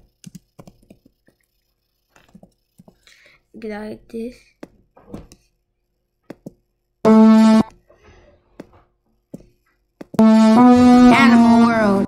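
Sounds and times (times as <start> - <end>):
bright pitched cartoon tone: 7.1 - 7.7, 10.2 - 12.0.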